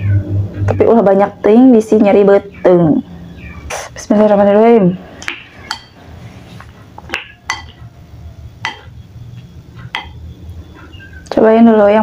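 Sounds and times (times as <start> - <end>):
spoon clinking against bowl: 5.6 - 6.0, 7.1 - 7.8, 8.6 - 8.9, 9.9 - 10.2.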